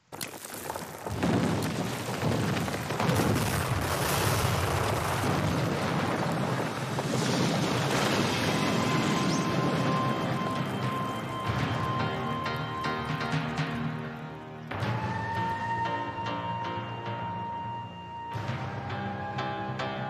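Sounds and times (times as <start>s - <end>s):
brick wall crashing: 0.0s - 12.0s
rubble tumbling down: 0.0s - 12.5s.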